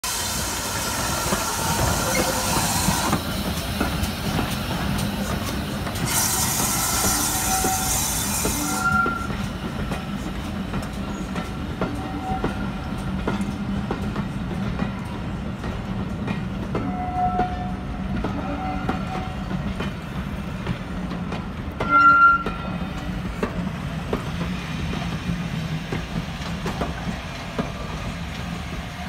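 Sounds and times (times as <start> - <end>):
steam hiss: 0.0 - 10.1
train wheels squealing: 0.1 - 3.6, 6.0 - 9.5.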